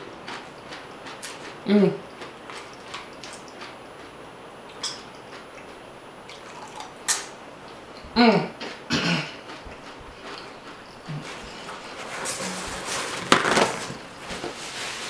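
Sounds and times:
person chewing: 0.0s - 12.0s.

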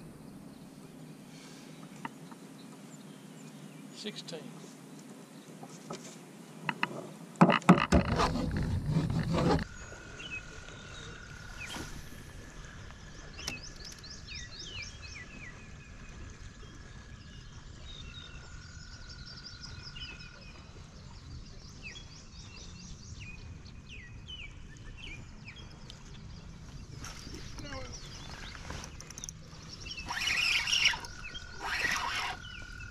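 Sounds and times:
birds chirping: 7.7s - 32.9s.

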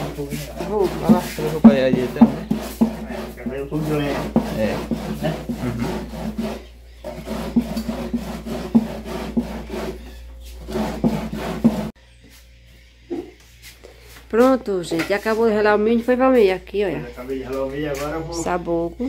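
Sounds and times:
corn grated on metal grater: 0.0s - 11.9s.

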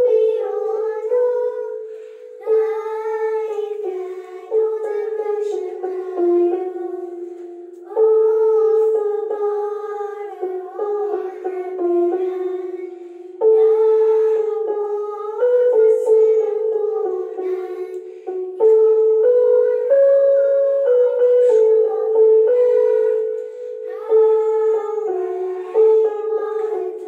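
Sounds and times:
children singing slow melody: 0.0s - 27.0s.

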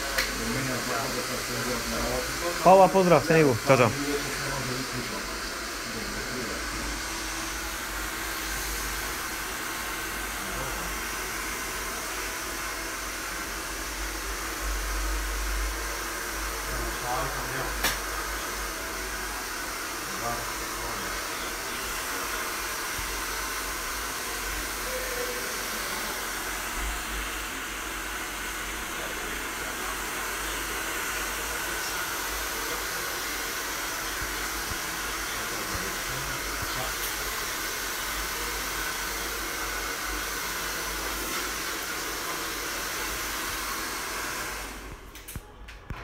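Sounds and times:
hair dryer blowing: 0.0s - 45.5s.

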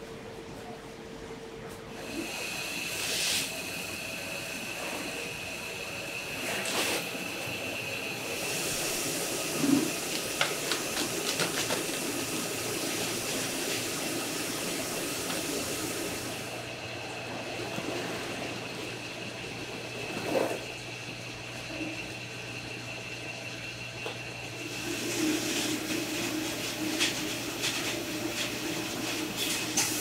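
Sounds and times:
high machine whine: 1.9s - 30.0s.

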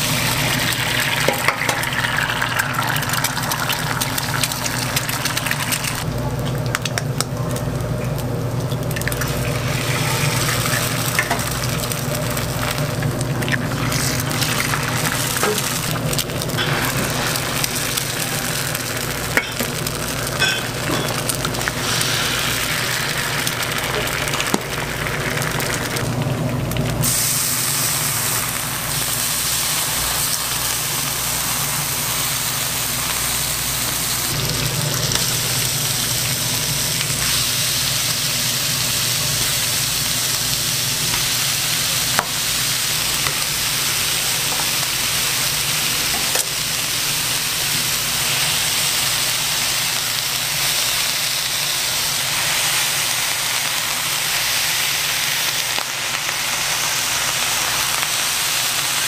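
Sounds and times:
food sizzling on a griddle: 0.0s - 6.1s, 6.9s - 59.0s.

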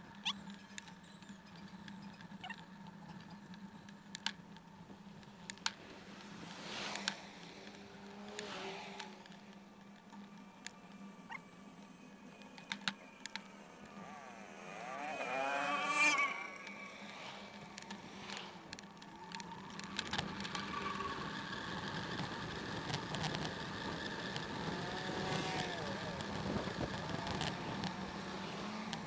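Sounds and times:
faint road noise: 0.0s - 29.0s
vehicle engine passing by: 6.0s - 9.6s, 13.5s - 29.0s.

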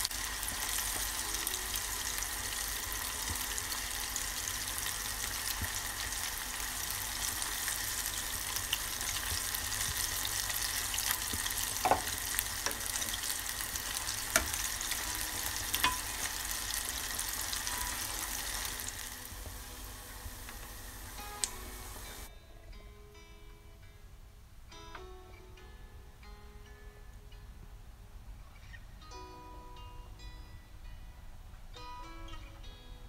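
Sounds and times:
deep-frying oil sizzling: 0.0s - 22.3s.

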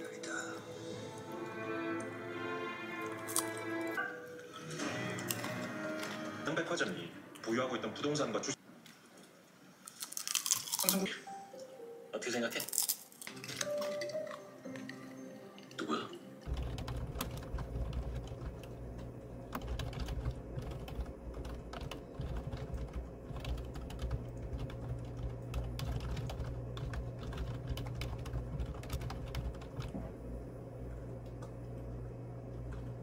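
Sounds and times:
steady low hum: 16.5s - 33.0s.

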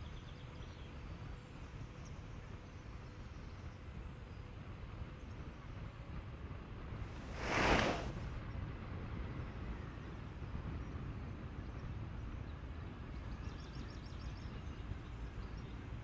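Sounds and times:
wind and road noise: 6.9s - 8.6s
brief whoosh: 7.1s - 8.3s.

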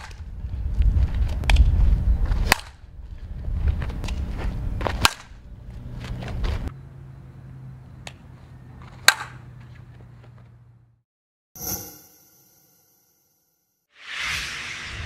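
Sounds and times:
softball bat hitting ball: 2.4s - 2.8s, 4.9s - 5.4s, 9.0s - 9.5s.

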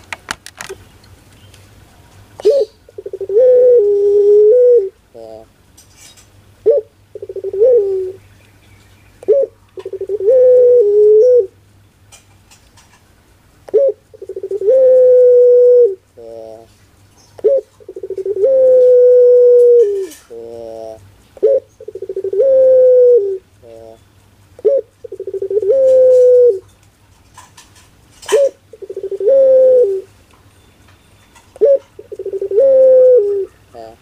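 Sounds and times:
dove cooing: 2.4s - 5.5s, 6.6s - 8.2s, 9.2s - 11.6s, 13.7s - 16.7s, 17.4s - 24.0s, 24.6s - 26.7s, 28.2s - 30.1s, 31.4s - 34.0s.

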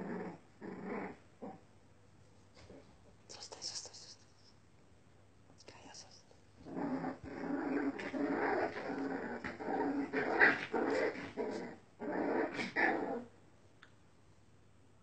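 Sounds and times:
puppies growling: 0.0s - 1.6s, 6.6s - 13.3s.

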